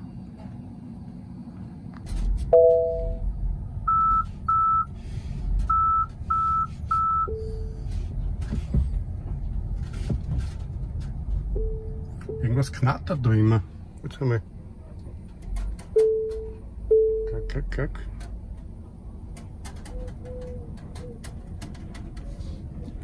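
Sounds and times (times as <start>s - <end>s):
low rumble: 0.0s - 15.9s
low tone: 2.4s - 4.9s, 5.6s - 8.1s, 11.3s - 12.7s, 15.9s - 17.8s
short high beeps: 2.6s - 3.2s.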